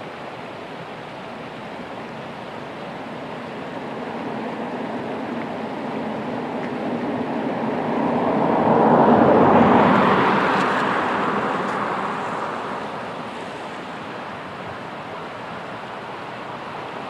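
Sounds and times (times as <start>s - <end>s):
vehicle passing by: 5.7s - 13.9s.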